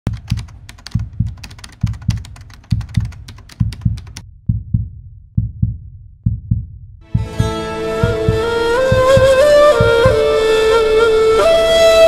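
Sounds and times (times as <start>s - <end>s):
fast sharp clicks: 0.1s - 4.2s
heartbeat thumps: 0.1s - 10.3s.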